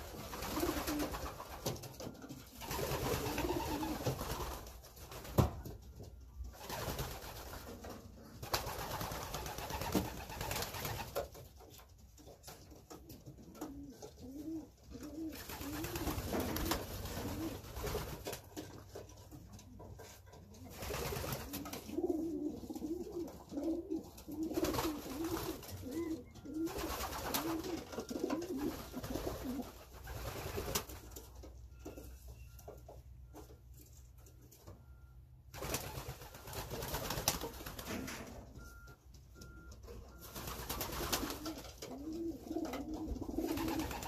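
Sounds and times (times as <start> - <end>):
pigeons cooing: 0.0 - 1.6, 2.4 - 4.4, 13.2 - 18.0, 19.8 - 30.7, 40.5 - 44.0.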